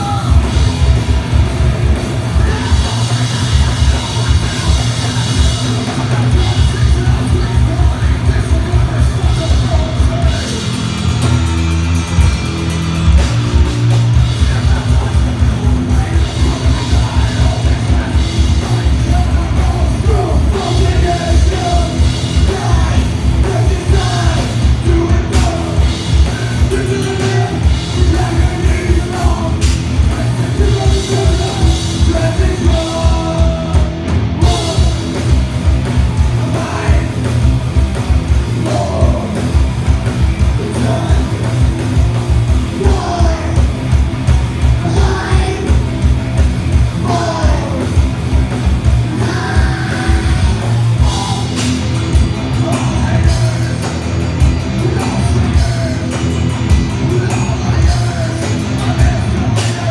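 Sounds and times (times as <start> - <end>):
person singing and shouting: 0.0 - 0.7, 2.2 - 10.9, 14.4 - 35.3, 42.6 - 43.7, 44.8 - 46.0, 47.0 - 48.1, 49.0 - 51.7
live rock band playing: 0.0 - 59.9.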